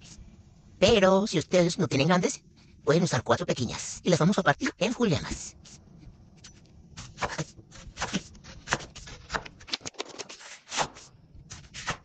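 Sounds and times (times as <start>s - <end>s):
knife chopping onion on a board: 6.4s - 9.9s, 10.7s - 12.0s.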